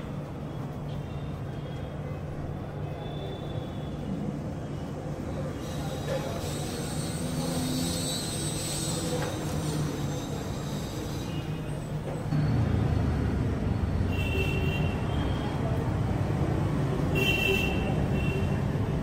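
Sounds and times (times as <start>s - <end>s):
street traffic rumble: 0.0s - 19.0s.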